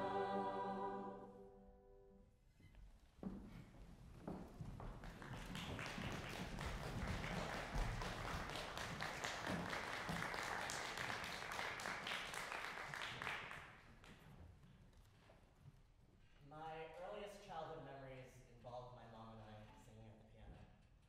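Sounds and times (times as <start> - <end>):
audience applause: 5.0 - 13.8.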